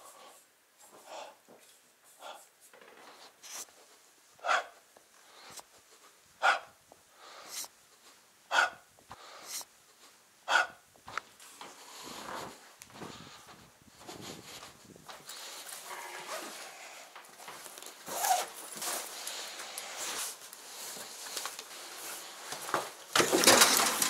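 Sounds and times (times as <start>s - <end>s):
man breathing hard: 0.0s - 1.5s, 2.1s - 2.6s, 4.4s - 10.8s, 11.6s - 15.9s, 18.8s - 22.5s
soft rustle: 0.0s - 8.4s, 11.0s - 23.1s.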